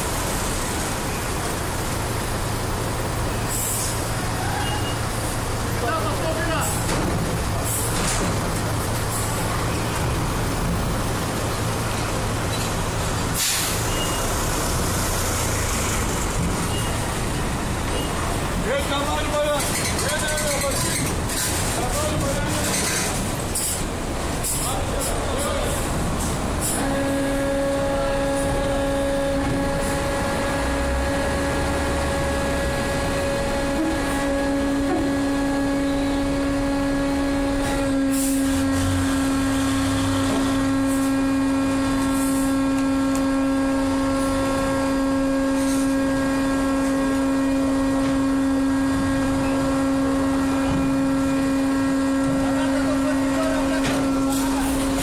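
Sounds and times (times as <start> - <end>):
truck engines: 0.0 - 55.0
pitched machine drone: 26.6 - 55.0.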